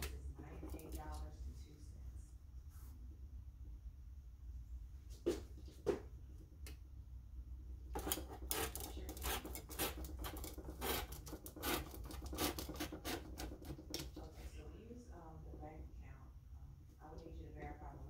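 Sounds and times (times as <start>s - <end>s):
rotary cutter scratching through paper: 7.9s - 13.9s.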